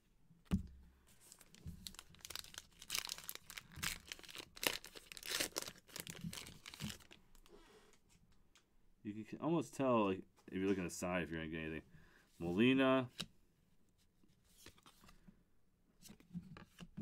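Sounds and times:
card pack wrapper tearing: 0:01.4 - 0:07.2.

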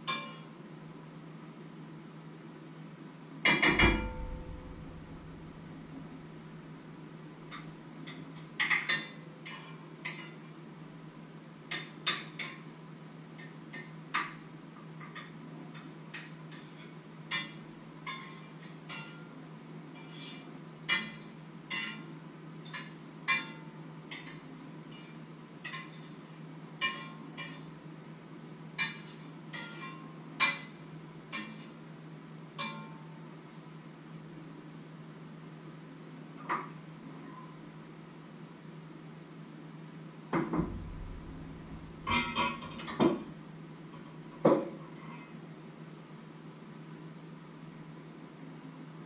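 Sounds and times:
low hum: 0:03.8 - 0:06.4, 0:40.5 - 0:43.0.

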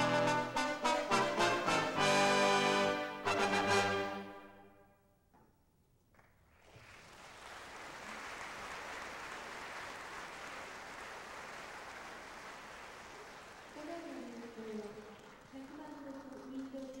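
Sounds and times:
audience applauding: 0:06.5 - 0:17.0.

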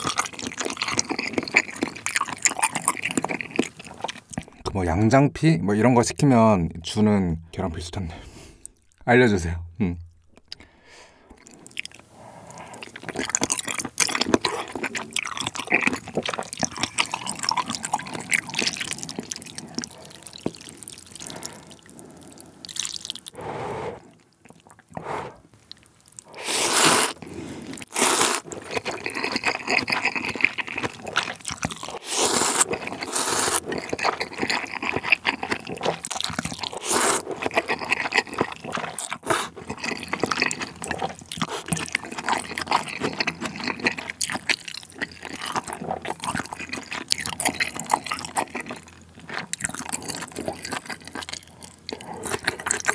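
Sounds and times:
wet chewing and smacking: 0:00.0 - 0:04.7, 0:11.3 - 0:52.9
noodle slurps: 0:12.2 - 0:25.5, 0:26.2 - 0:48.6.

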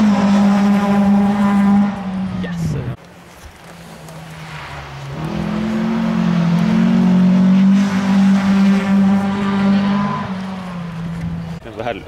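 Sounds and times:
rally car engine at high revs: 0:00.0 - 0:02.9, 0:05.0 - 0:11.6.

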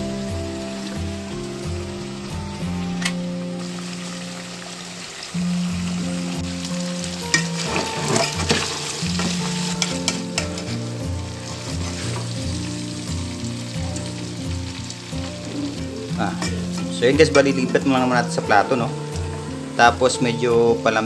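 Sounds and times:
background music with steady beat: 0:00.0 - 0:21.0
meat sizzling in lard: 0:00.0 - 0:21.0
metal ladle scraping a pot: 0:07.3 - 0:10.9, 0:11.5 - 0:12.5.

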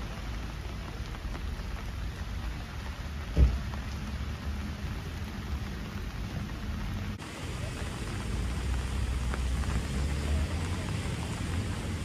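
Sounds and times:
rain falling on water: 0:00.0 - 0:12.0
dull thump: 0:03.3 - 0:03.6.

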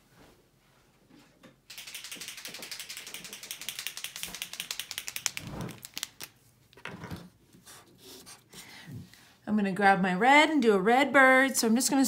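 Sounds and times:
paint pen ball rattling: 0:01.7 - 0:06.4.

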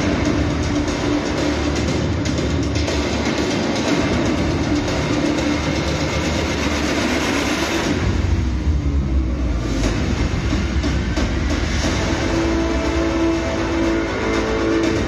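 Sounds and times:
soundtrack over hall speakers: 0:00.0 - 0:15.0
deep rumble: 0:03.9 - 0:15.0.

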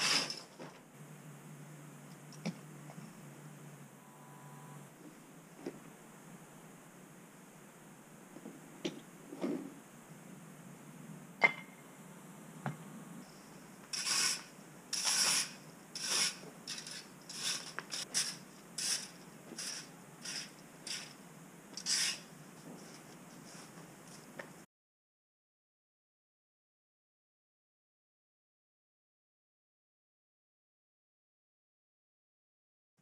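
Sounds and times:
plastic rake scraping ground: 0:00.0 - 0:00.8, 0:09.3 - 0:09.8, 0:13.9 - 0:21.2, 0:21.8 - 0:23.8.

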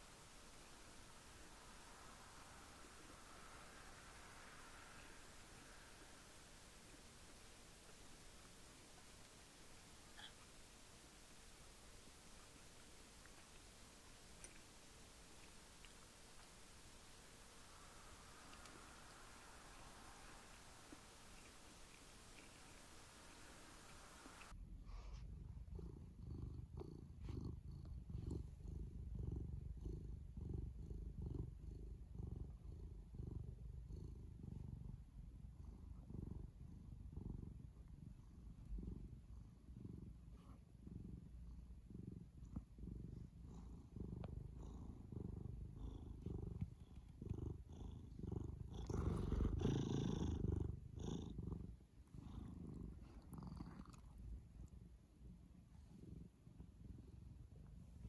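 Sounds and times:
cat purring: 0:00.0 - 0:58.0.

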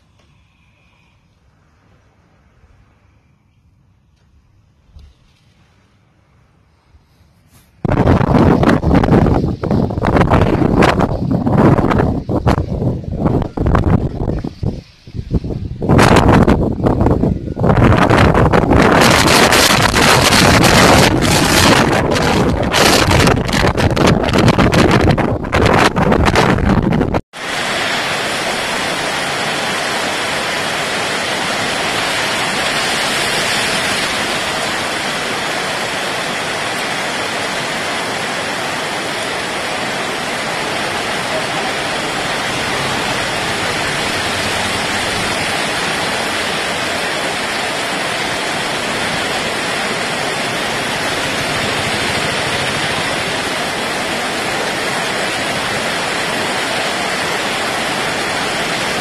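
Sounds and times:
heavy rain pouring: 0:07.8 - 0:59.0.

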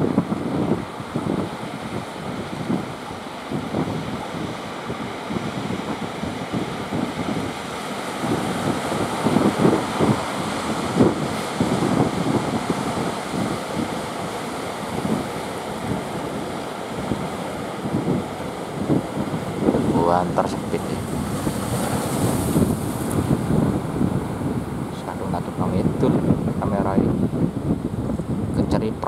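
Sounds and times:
choppy surf: 0:00.0 - 0:29.0
wind gusting on microphone: 0:00.0 - 0:29.0.

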